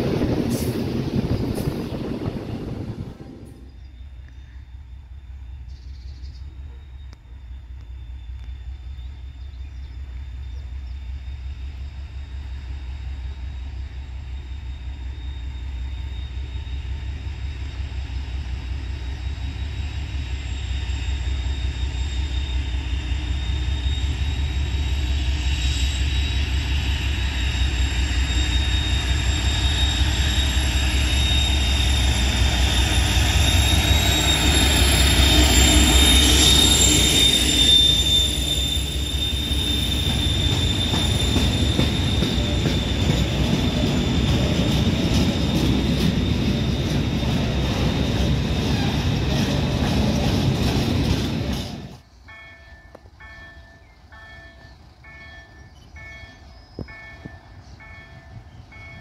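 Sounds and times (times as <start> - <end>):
diesel locomotive engine rumble: 0.0 - 59.0
wheels squealing: 25.8 - 52.0.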